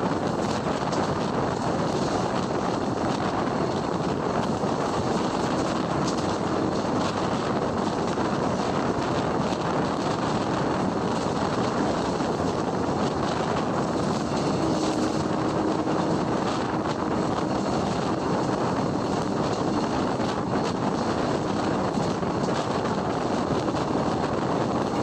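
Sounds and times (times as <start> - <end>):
train coach rumbling: 0.0 - 25.0
train wheels rolling on rails: 0.0 - 25.0.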